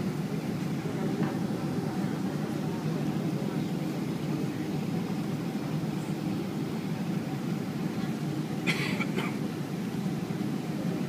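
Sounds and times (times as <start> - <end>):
airplane cabin engine rumble: 0.0 - 11.0.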